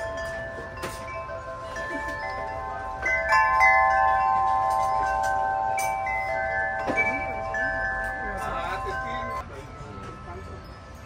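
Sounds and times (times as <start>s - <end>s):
metal tube wind chime ringing: 0.0s - 11.0s.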